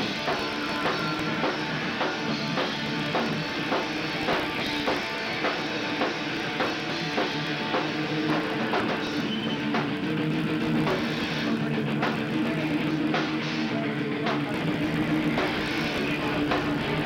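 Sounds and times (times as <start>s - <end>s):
drum kit beat: 0.0s - 17.0s
punk band playing live: 0.0s - 17.0s.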